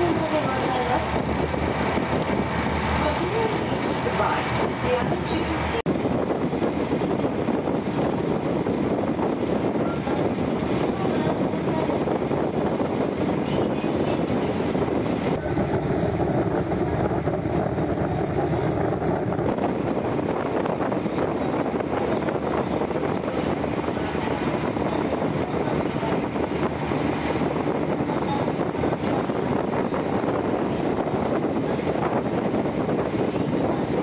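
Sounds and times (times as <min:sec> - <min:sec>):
boat engine drone: 0:00.0 - 0:34.0
water rushing: 0:00.0 - 0:34.0
wind rushing: 0:00.0 - 0:34.0.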